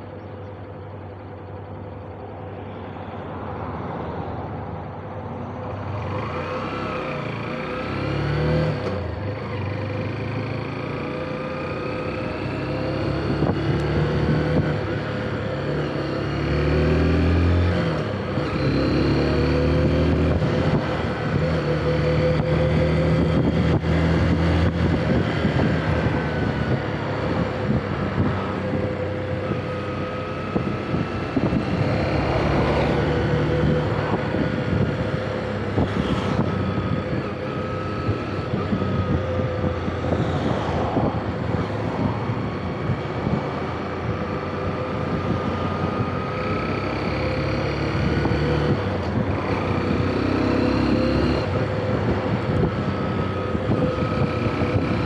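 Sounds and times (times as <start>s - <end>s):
motorcycle engine accelerating: 5.7s - 55.0s
wind noise on microphone: 12.4s - 55.0s.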